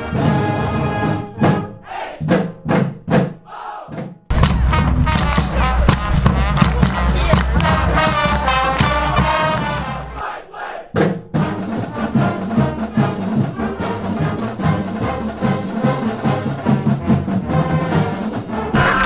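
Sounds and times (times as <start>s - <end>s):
upbeat brass music: 0.0s - 19.0s
music with steady beat: 4.0s - 10.2s.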